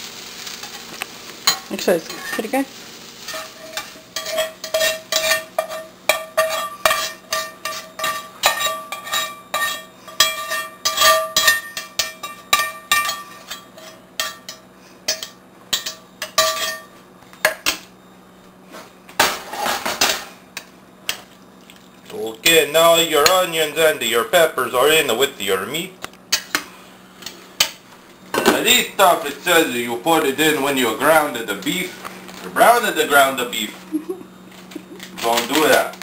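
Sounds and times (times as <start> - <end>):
metal spatula scraping skillet: 1.4 - 16.9.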